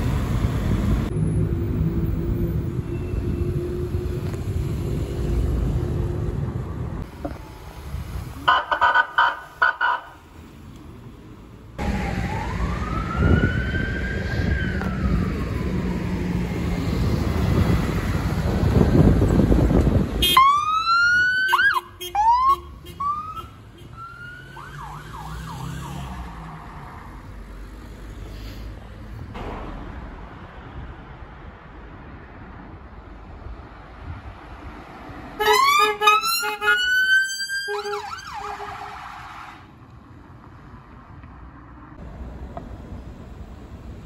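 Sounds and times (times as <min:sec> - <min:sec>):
engine and road rumble: 0:00.0 - 0:44.0
quiet traffic: 0:00.0 - 0:44.0
police siren wailing: 0:08.4 - 0:10.2, 0:11.8 - 0:16.9, 0:20.4 - 0:26.4, 0:35.4 - 0:39.6
police siren whoops and warble: 0:11.8 - 0:16.7, 0:20.4 - 0:26.2, 0:35.5 - 0:39.6.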